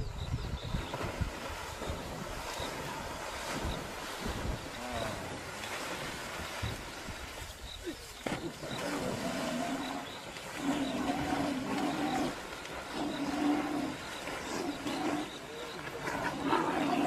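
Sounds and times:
animal growling: 8.8s - 17.0s.

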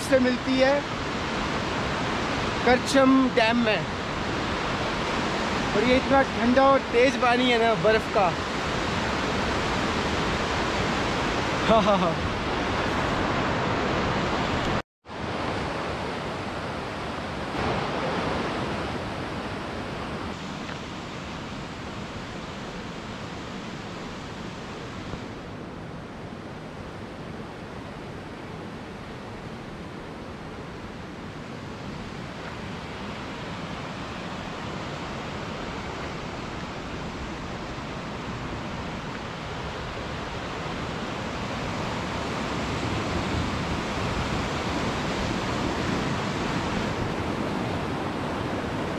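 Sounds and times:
water rushing over rocks: 0.0s - 25.3s.

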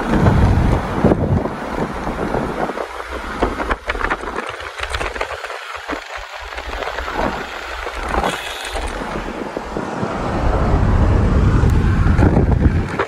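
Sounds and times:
road and wind noise in car: 0.0s - 13.0s
low rumble: 8.9s - 13.0s.

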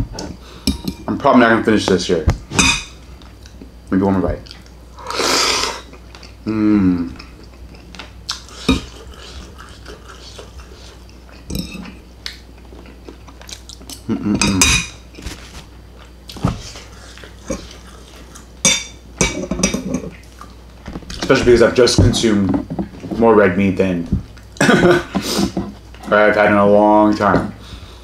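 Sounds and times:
fork scraping and clinking on plate: 11.5s - 12.0s.

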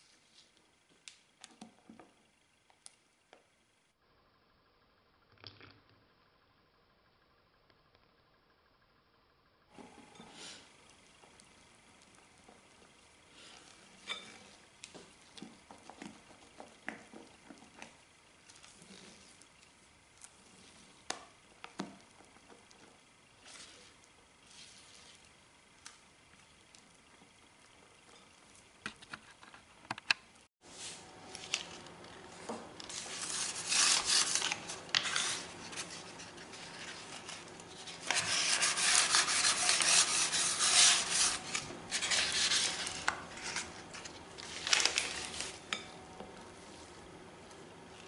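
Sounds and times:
paper towel rustling in baking pan: 30.6s - 45.8s.

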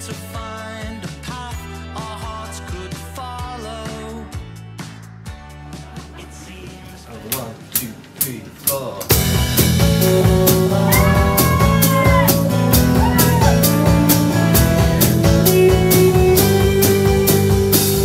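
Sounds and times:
live rock band playing: 9.1s - 18.0s.

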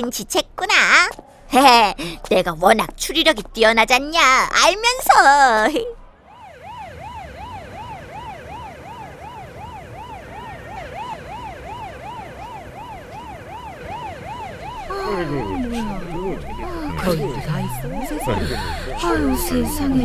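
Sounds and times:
police siren sweeping: 6.2s - 20.0s
voices: 14.8s - 20.0s.

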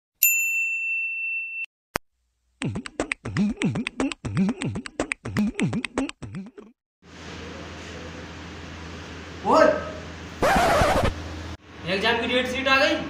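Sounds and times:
beatbox vocal effect: 2.6s - 6.8s.

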